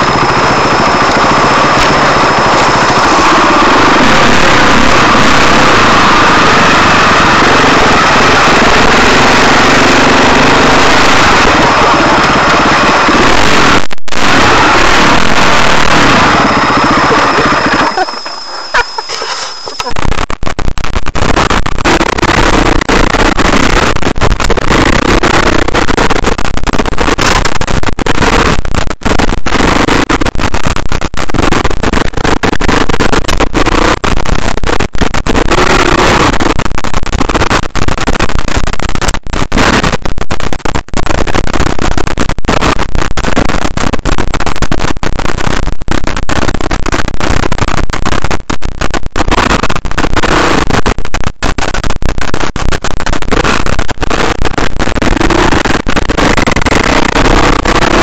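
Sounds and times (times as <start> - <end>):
dirt bike engine revving: 0.0 - 19.9.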